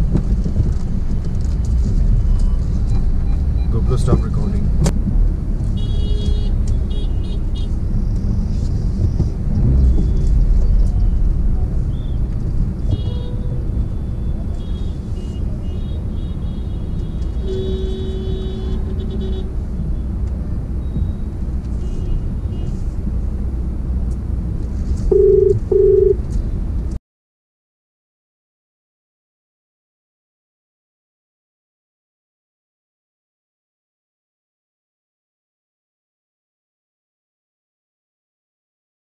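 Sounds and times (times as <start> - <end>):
loud car horn blast: 17.4 - 19.5
weak car horn: 17.4 - 19.5, 25.1 - 26.2
short high beeping tones: 25.1 - 26.2.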